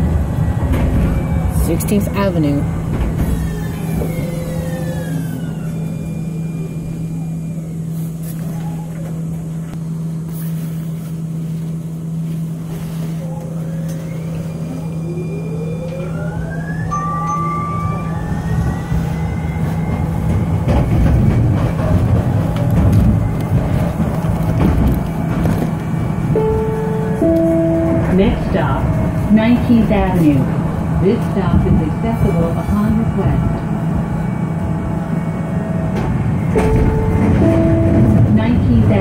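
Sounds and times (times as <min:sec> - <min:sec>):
wheels rumbling on rails: 0:00.0 - 0:39.0
traction motor whine rising: 0:13.2 - 0:20.9
steady electrical hum: 0:22.4 - 0:39.0.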